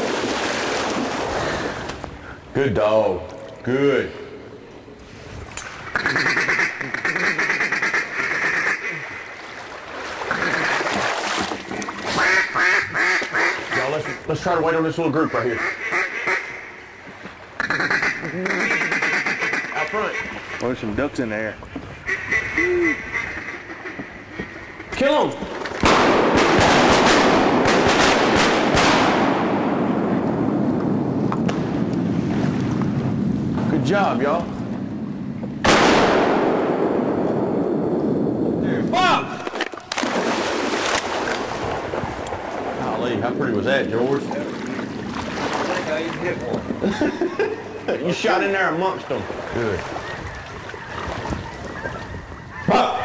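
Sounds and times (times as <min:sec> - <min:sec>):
duck call chattering: 0:05.9 - 0:09.2, 0:12.2 - 0:14.3, 0:15.2 - 0:16.7, 0:17.6 - 0:20.6, 0:22.0 - 0:24.6
shotgun shots: 0:25.8 - 0:30.1, 0:35.6 - 0:37.6
gunshot echo: 0:25.8 - 0:30.2, 0:35.6 - 0:37.7.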